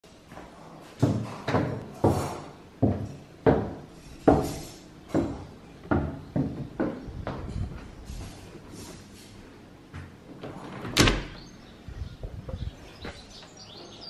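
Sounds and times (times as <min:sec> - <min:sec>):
heavy footsteps on hard floors: 0:00.2 - 0:09.0.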